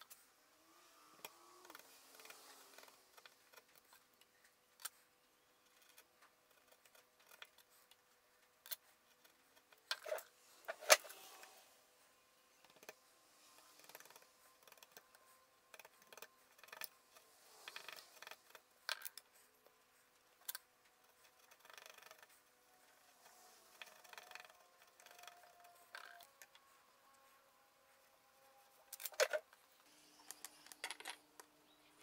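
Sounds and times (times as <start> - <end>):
chisel scraping wood: 21.0 - 26.5.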